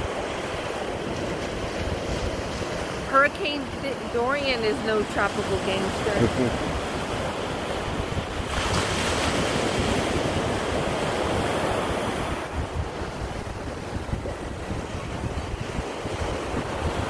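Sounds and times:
surf breaking and washing up: 0:00.0 - 0:17.0
wind buffeting microphone: 0:00.0 - 0:17.0.

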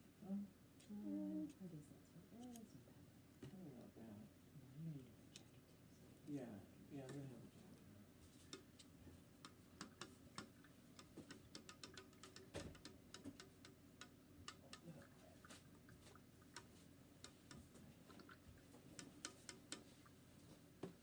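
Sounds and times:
light clicks and taps: 0:08.3 - 0:21.0.

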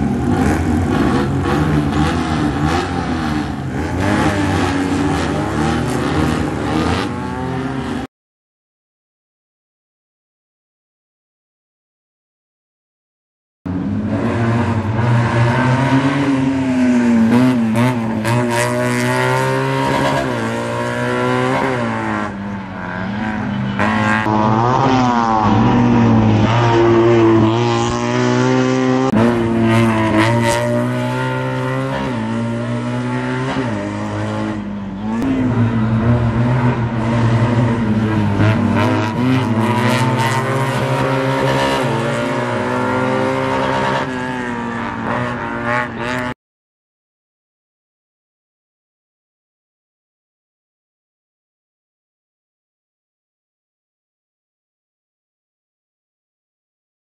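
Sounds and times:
car engine revving hard: 0:00.0 - 0:08.1, 0:13.8 - 0:46.4.

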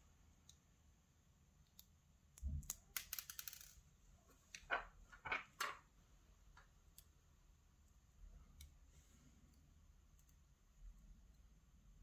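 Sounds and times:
tweezers and lock pins clicking: 0:02.6 - 0:03.8.

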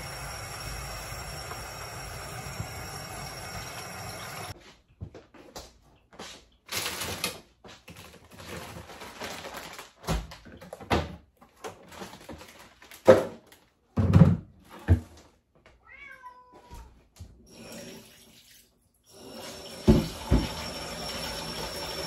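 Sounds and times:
cat meowing: 0:15.8 - 0:17.0.

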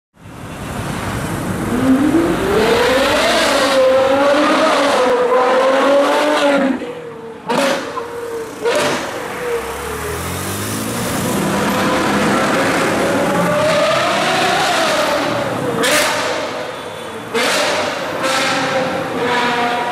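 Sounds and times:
car engine revving hard: 0:01.6 - 0:06.8, 0:08.6 - 0:16.6, 0:17.3 - 0:19.7.

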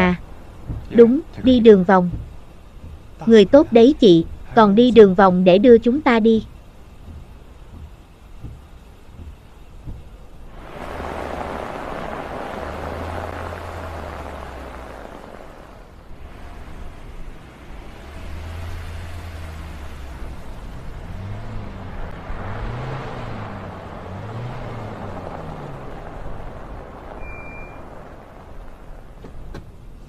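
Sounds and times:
car driving and pulling up: 0:00.0 - 0:30.0
low hum: 0:00.0 - 0:30.0
wind and blowing snow hiss: 0:06.7 - 0:30.0
rising and falling low tone: 0:10.5 - 0:16.0
short high beep: 0:27.2 - 0:27.8.

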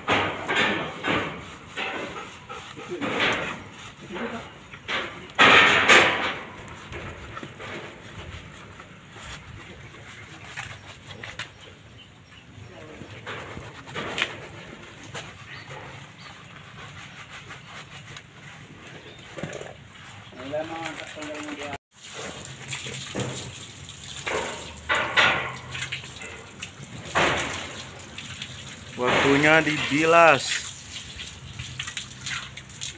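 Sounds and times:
wet rubbing of lather: 0:19.9 - 0:24.9, 0:25.5 - 0:32.9
hose water spraying and splashing: 0:19.9 - 0:32.9.

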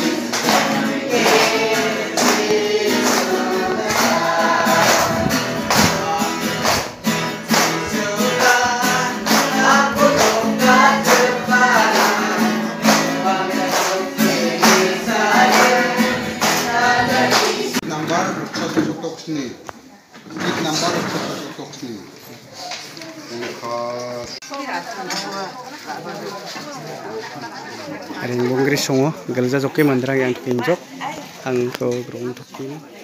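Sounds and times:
congregation singing a hymn: 0:00.0 - 0:18.4
acoustic guitar: 0:00.0 - 0:19.2.

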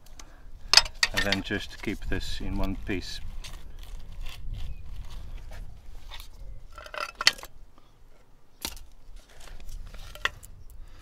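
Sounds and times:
clicks and knocks handling parts: 0:00.0 - 0:02.0, 0:06.1 - 0:07.6, 0:08.2 - 0:10.5.

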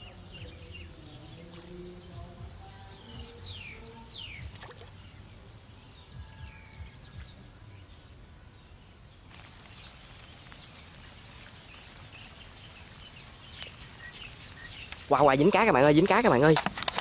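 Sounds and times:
birds whistled calls: 0:00.0 - 0:08.1, 0:08.7 - 0:15.4
steady hiss: 0:09.0 - 0:17.0.

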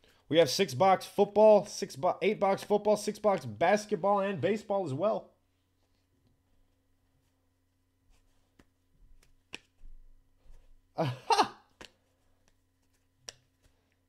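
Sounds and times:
faint electrical hum: 0:00.0 - 0:14.0
person sighing: 0:11.0 - 0:11.7
faint clicks and taps: 0:11.7 - 0:14.0.

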